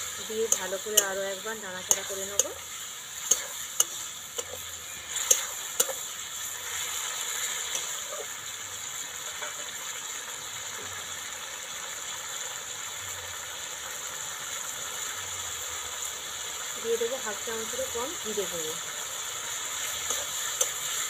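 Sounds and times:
metal spatula scraping metal pan: 0:00.0 - 0:08.4, 0:19.8 - 0:21.0
curry sizzling in pan: 0:00.0 - 0:21.0.

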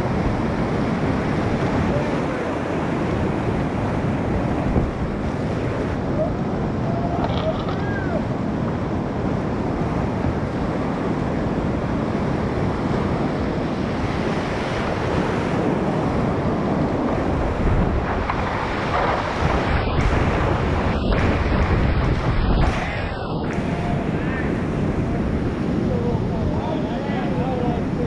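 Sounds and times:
wind buffeting microphone: 0:00.0 - 0:28.0
whitewater rapids rushing: 0:14.1 - 0:25.7.

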